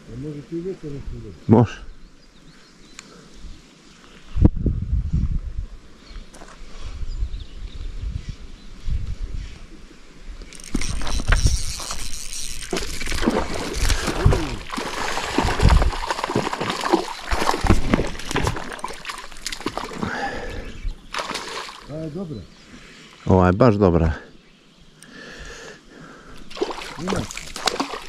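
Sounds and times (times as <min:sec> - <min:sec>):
water splashing and sloshing: 0:10.4 - 0:22.0, 0:26.4 - 0:28.0
fish thrashing on line: 0:10.5 - 0:20.2, 0:21.1 - 0:21.9, 0:26.5 - 0:28.0.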